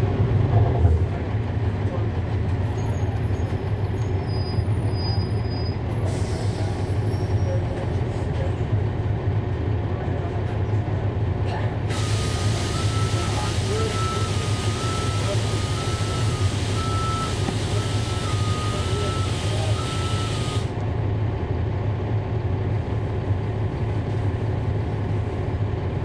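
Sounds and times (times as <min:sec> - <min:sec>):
bus diesel engine hum: 0:00.0 - 0:26.0
hiss: 0:11.9 - 0:20.7.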